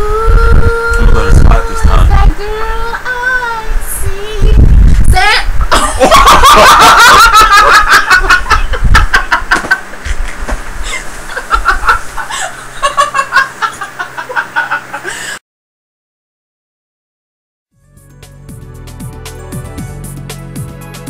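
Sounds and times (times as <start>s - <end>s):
breathless laughter: 5.7s - 15.4s.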